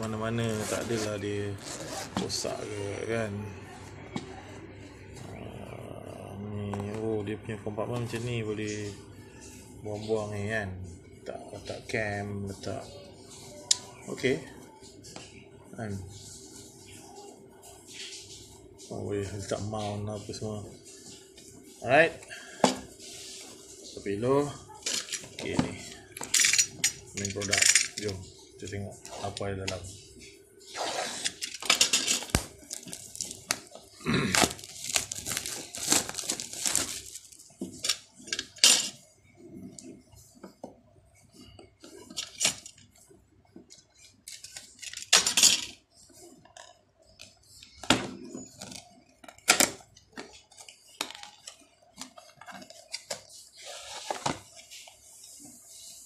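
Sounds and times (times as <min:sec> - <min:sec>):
cardboard packaging scraping and tearing: 0:00.4 - 0:02.7, 0:34.3 - 0:37.4.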